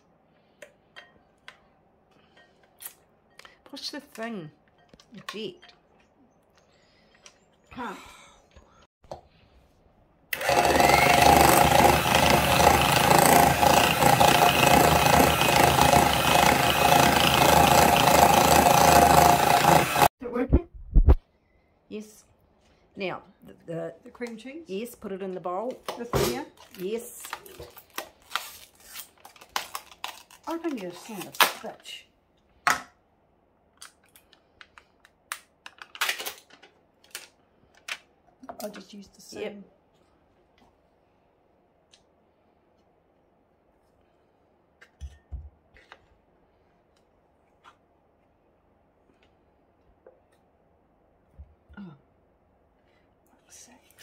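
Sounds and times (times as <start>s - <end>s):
electric hand mixer whisking: 10.3s - 20.1s.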